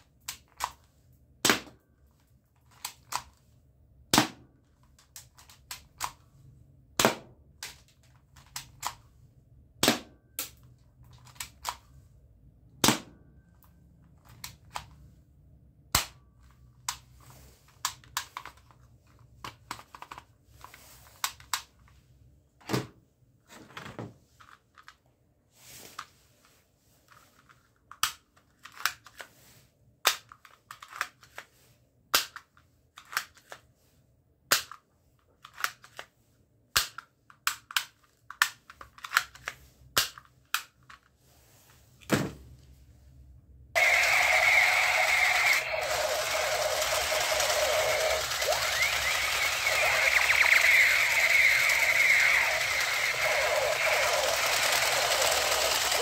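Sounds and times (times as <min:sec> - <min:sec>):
toy guns clicking and snapping: 0:04.2 - 0:06.2, 0:07.0 - 0:09.0, 0:09.8 - 0:11.8, 0:32.1 - 0:33.6, 0:34.5 - 0:34.8, 0:36.8 - 0:41.0, 0:43.8 - 0:56.0
toy gun rasps: 0:43.8 - 0:56.0.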